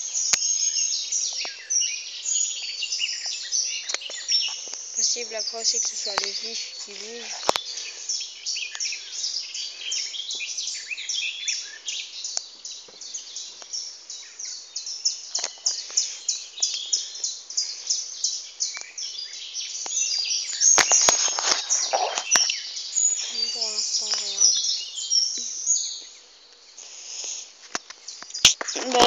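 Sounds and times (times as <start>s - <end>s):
birds chirping: 0.0s - 29.0s
sharp clicks: 5.8s - 7.7s.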